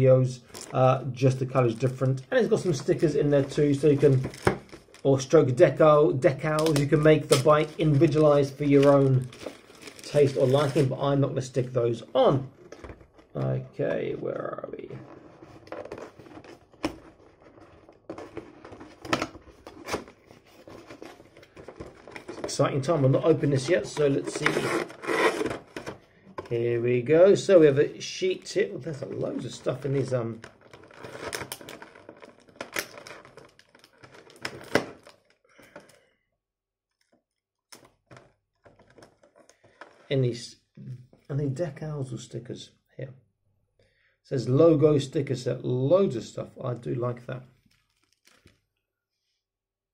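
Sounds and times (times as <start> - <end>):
paper packaging rustling: 0.5 - 5.4, 6.4 - 26.0, 28.2 - 35.9, 37.8 - 40.0, 47.6 - 48.6
cardboard rubbing and scraping: 24.1 - 25.9.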